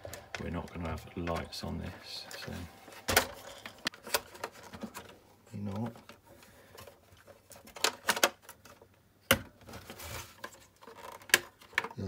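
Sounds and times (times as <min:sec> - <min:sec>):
plastic scrape: 0:09.7 - 0:12.0
plastic clicks and knocks: 0:10.4 - 0:12.0.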